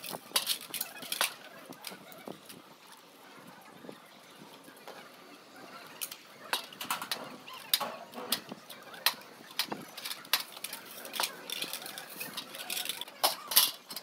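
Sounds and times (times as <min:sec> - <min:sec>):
dishes clinking: 0:10.7 - 0:14.0.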